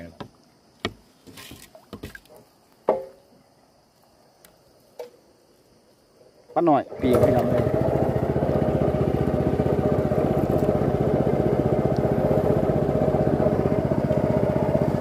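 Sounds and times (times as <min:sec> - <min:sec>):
small boat engine running: 0:06.9 - 0:15.0.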